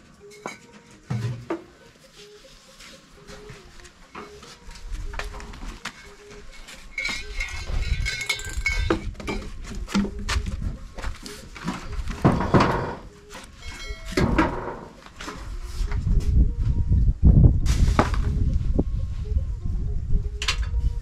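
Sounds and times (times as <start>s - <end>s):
knocks and scraping: 3.4s - 16.4s.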